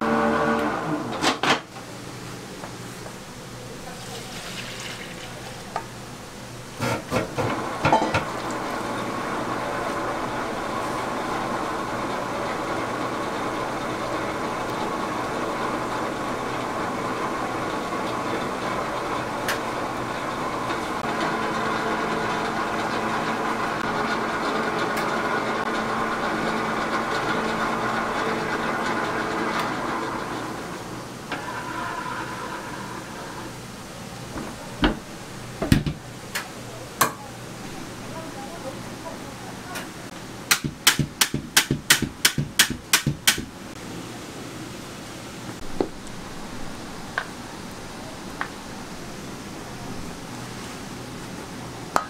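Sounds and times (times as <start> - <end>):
stand mixer motor whirring: 0.0 - 1.1, 7.4 - 33.6.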